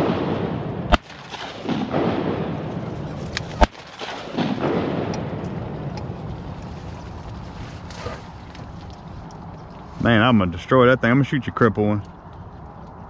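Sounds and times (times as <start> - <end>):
shotgun shots: 0.0 - 5.5.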